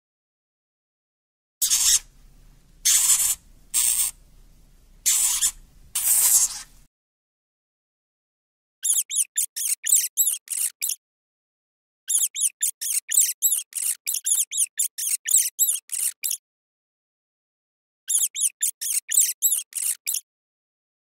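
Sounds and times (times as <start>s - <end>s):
hamster squeaking: 1.6s - 6.9s, 8.8s - 11.0s, 12.1s - 16.4s, 18.1s - 20.3s.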